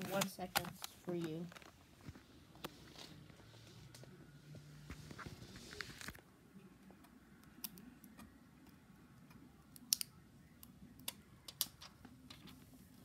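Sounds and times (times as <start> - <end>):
plastic film peeling and crackling: 4.9 - 6.2.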